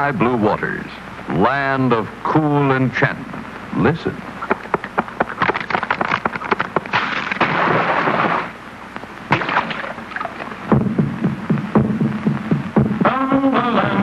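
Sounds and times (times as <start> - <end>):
cartoon rapid gnawing clicks: 4.4 - 7.4
tree falling crash: 5.4 - 8.5.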